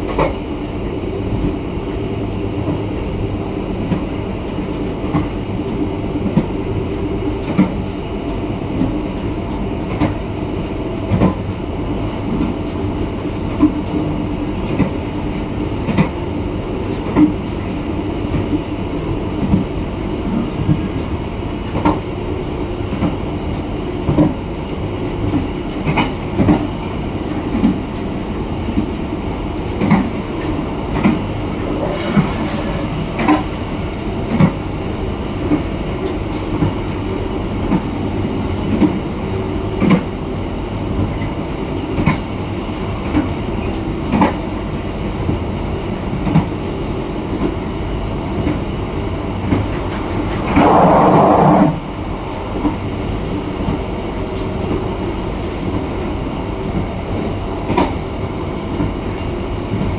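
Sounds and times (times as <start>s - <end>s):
train wheels rumbling on rail: 0.0s - 59.9s
rail joint clacks: 25.0s - 37.9s.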